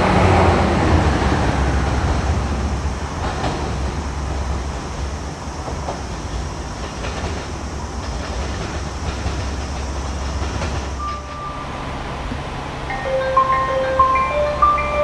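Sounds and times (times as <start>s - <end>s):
diesel train rumble: 0.0s - 15.0s
chime note: 11.0s - 12.1s, 12.8s - 15.0s.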